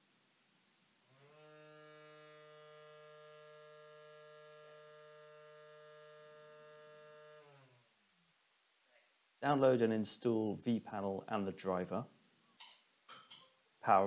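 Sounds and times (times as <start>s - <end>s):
extractor electric hum: 1.1s - 7.9s.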